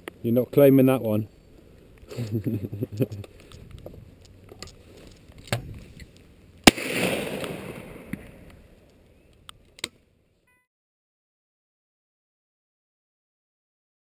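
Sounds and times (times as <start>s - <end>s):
shotgun shot: 6.6s - 8.4s
faint sharp crack: 6.6s - 10.0s.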